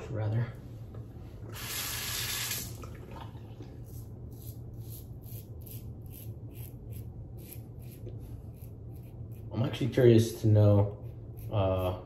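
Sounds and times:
running water: 1.5 - 3.6
razor scraping stubble: 3.8 - 12.0.

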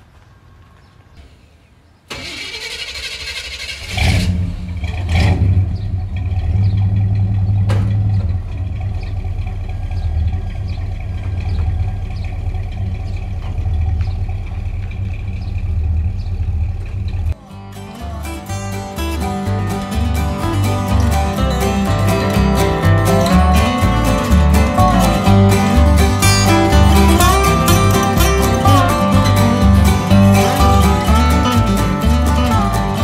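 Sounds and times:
engine starter cranking: 2.1 - 17.4
pickup engine running with deep rumble: 3.7 - 17.4, 19.0 - 33.0.

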